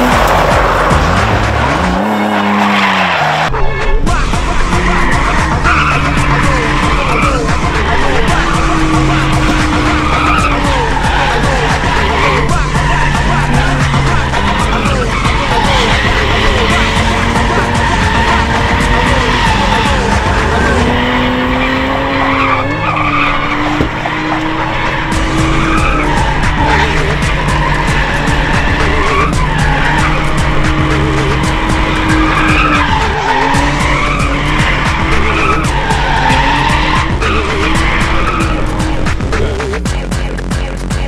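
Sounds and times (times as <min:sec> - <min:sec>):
tyres squealing: 0:00.0 - 0:39.9
car engine revving: 0:00.0 - 0:40.6
music with steady beat: 0:04.0 - 0:41.0.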